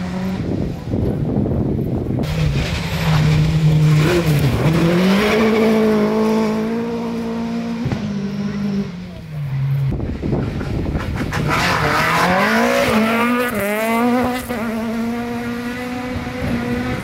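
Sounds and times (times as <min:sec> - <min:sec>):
rally car engine at high revs: 0:00.0 - 0:01.2, 0:02.1 - 0:17.0.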